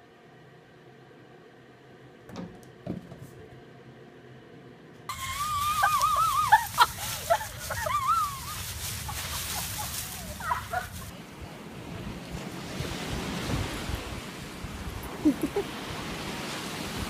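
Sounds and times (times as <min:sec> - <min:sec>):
dog rustling through leaves: 0:05.1 - 0:11.1.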